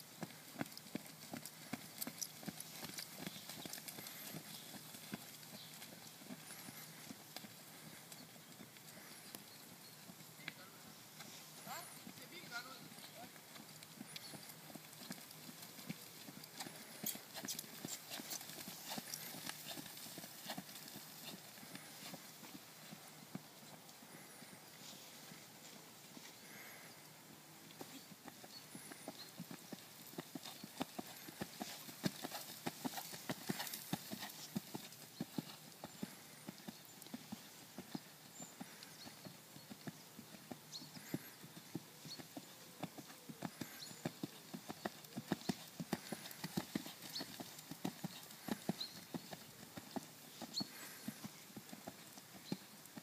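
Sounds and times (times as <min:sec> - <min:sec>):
horse hoofbeats on sand: 0:00.1 - 0:09.1, 0:11.2 - 0:23.5, 0:27.8 - 0:53.0.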